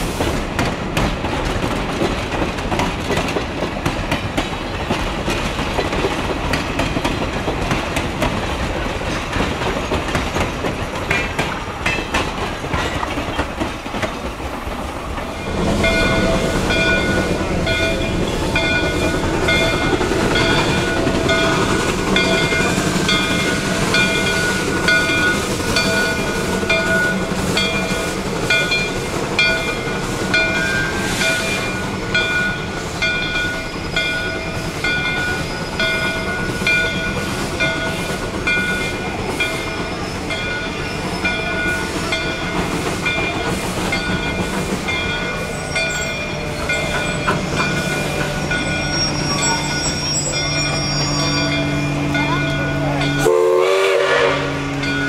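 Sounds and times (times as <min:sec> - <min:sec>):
train wheels rumbling: 0:00.0 - 0:55.0
locomotive bell ringing: 0:15.2 - 0:55.0.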